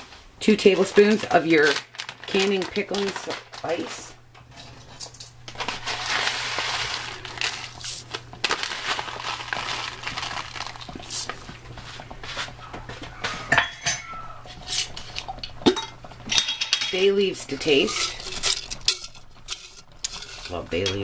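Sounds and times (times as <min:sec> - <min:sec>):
spice pouring rattling rustle: 0:05.6 - 0:11.4
utensil clinking against pot: 0:13.4 - 0:21.0.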